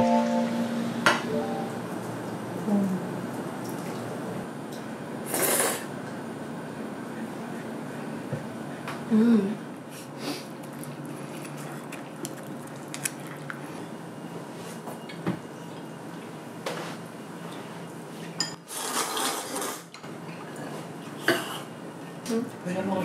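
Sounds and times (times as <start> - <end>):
low steady hum: 0.0 - 4.8.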